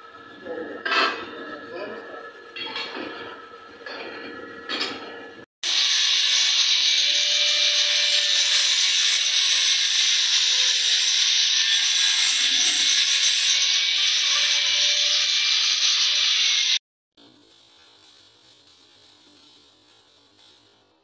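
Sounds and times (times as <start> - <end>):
angle grinder grinding metal: 5.6 - 16.8.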